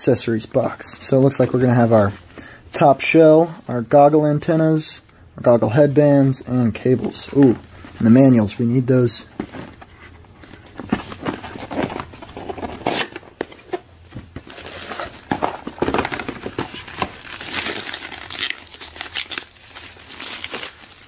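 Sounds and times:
packaging wrap crinkling: 0:14.4 - 0:21.0.

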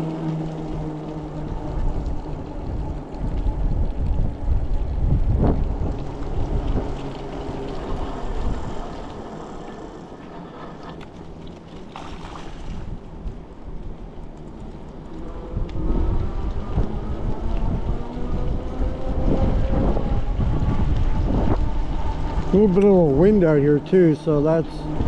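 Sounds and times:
rain: 0:00.0 - 0:25.0
wind buffeting microphone: 0:00.0 - 0:25.0
tyres hissing on wet road: 0:06.0 - 0:11.2, 0:21.1 - 0:25.0.

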